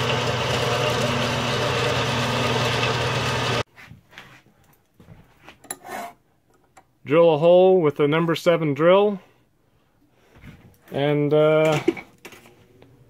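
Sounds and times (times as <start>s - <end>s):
bandsaw cutting metal: 0.0s - 3.6s
motor hum: 0.0s - 3.6s.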